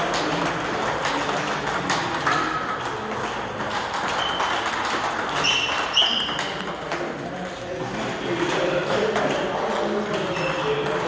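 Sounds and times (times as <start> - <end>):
table tennis ball clicking: 0.0 - 7.7
short high squeaks: 5.4 - 6.4.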